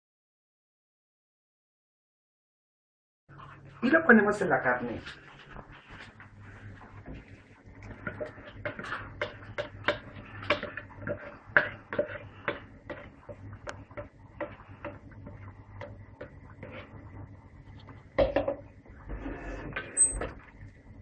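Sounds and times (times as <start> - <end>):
wooden spoon scraping steel pot: 5.7 - 20.4.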